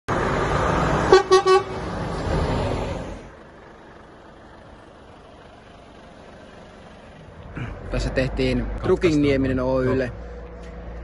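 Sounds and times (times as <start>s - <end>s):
truck horn toots: 1.1s - 1.8s.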